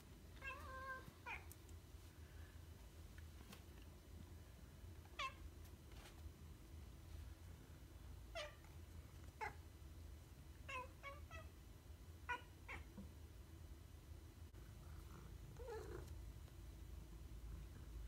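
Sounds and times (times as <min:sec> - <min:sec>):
cat meowing: 0:00.4 - 0:01.4.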